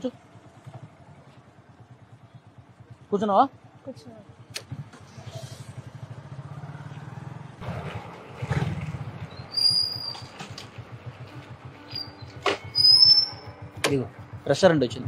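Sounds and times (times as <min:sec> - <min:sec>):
motorcycle engine running: 0:00.0 - 0:15.0
high whistling squeaks: 0:09.3 - 0:10.5, 0:11.8 - 0:13.6.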